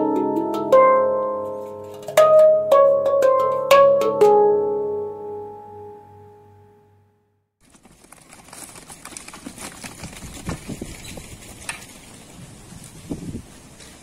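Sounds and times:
steady rustling hiss: 0:07.6 - 0:14.0.

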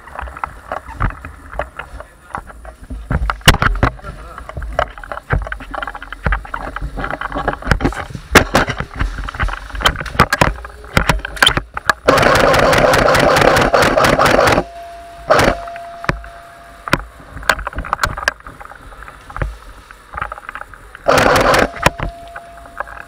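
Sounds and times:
airsoft rifle full-auto burst: 0:12.0 - 0:15.7, 0:21.1 - 0:22.1
steady high tone: 0:12.1 - 0:17.6, 0:21.0 - 0:23.0.

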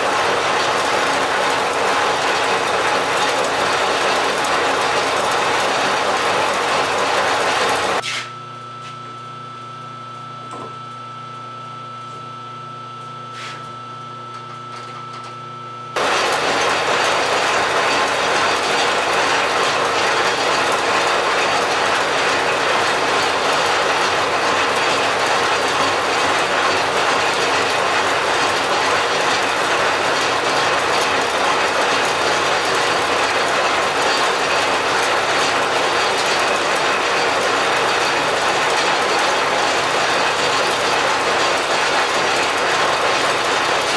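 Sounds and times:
lathe machine hum: 0:00.0 - 0:08.0, 0:16.0 - 0:43.9
lathe tool cutting metal: 0:16.0 - 0:43.9.

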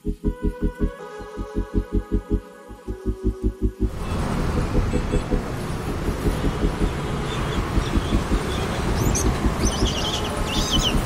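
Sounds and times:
road traffic noise: 0:02.8 - 0:11.0
small birds chirping: 0:06.8 - 0:11.0.

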